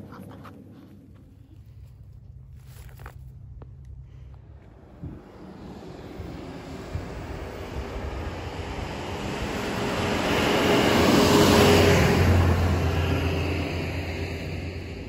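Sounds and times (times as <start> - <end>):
vehicle passing by: 4.4 - 15.0.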